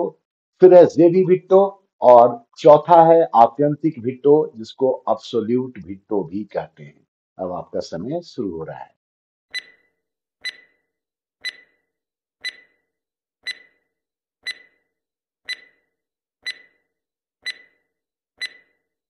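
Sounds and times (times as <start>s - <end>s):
timer ticking clicks: 9.5s - 9.8s, 10.4s - 10.8s, 11.4s - 11.8s, 12.4s - 12.8s, 13.4s - 13.8s, 14.4s - 14.8s, 15.5s - 15.8s, 16.4s - 16.8s, 17.4s - 17.8s, 18.4s - 18.8s.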